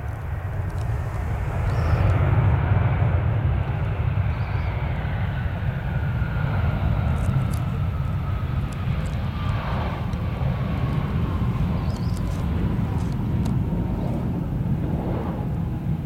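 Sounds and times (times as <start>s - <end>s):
jet engine whine: 0.0s - 16.0s
low rumble: 0.0s - 16.0s.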